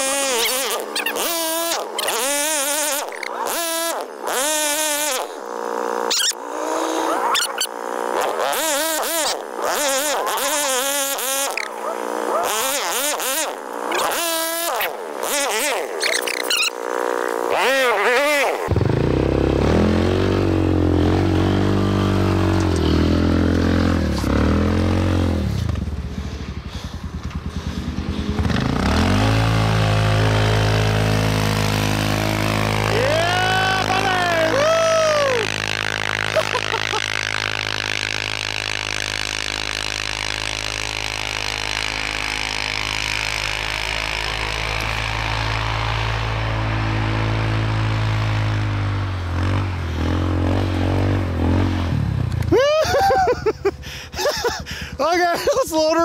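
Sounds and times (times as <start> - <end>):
quad engine revving: 0.0 - 56.0.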